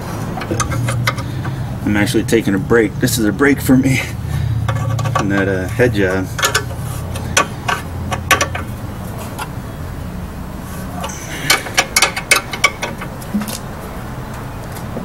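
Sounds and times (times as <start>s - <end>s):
steady low hum: 0.0s - 15.0s
ratchet wrench clicking: 0.4s - 1.5s, 4.7s - 9.5s, 11.0s - 13.6s.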